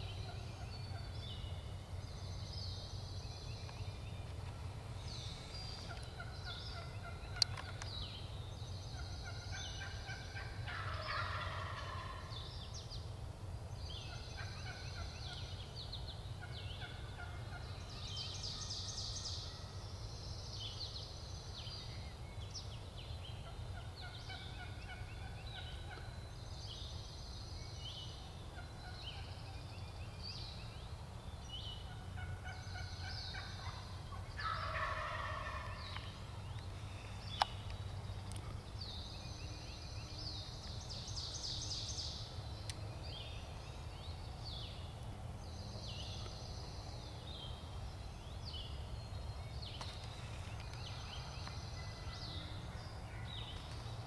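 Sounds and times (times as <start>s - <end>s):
songbirds chirping: 0.0s - 54.0s
turkey gobbling: 9.2s - 12.3s, 16.4s - 17.6s, 31.9s - 36.1s.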